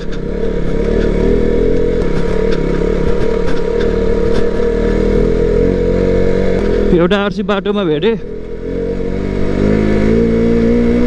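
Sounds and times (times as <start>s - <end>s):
knocks and clatter on rough track: 0.0s - 5.6s, 6.4s - 8.5s
motorcycle engine running: 0.0s - 11.0s.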